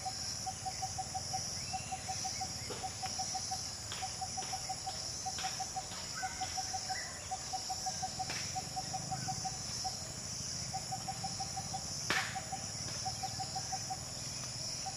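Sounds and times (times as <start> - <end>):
insects humming shrilly: 0.0 - 14.9.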